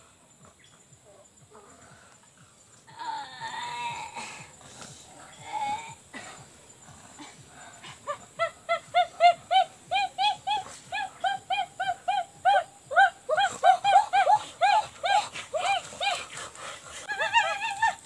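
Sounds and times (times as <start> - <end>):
girl laughing: 7.1 - 16.3, 16.9 - 18.0.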